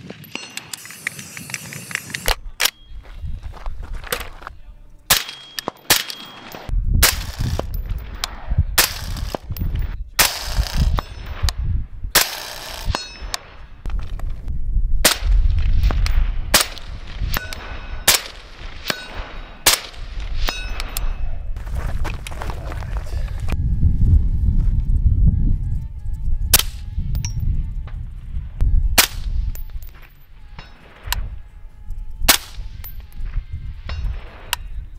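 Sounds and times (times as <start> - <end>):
steel targets clanging: 0.2 - 1.5, 5.1 - 6.7, 12.2 - 13.6, 17.3 - 21.3.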